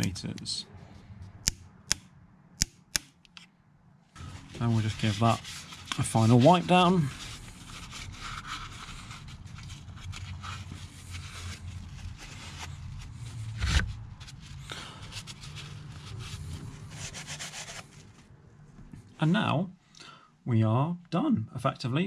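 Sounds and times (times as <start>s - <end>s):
cloth rag wiping metal: 4.2s - 13.4s.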